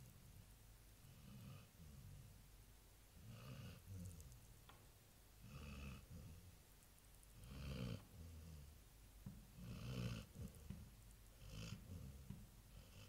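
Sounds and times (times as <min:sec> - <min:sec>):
dog snoring softly: 0:01.0 - 0:02.4, 0:03.2 - 0:04.4, 0:05.4 - 0:06.6, 0:07.3 - 0:08.8, 0:09.5 - 0:13.0.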